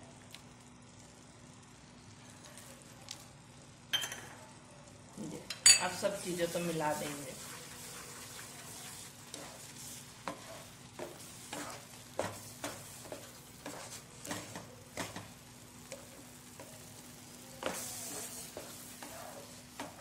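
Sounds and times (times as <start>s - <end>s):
food sizzling softly: 0.0s - 20.0s
spoon scraping a frying pan: 6.8s - 17.0s, 17.6s - 20.0s.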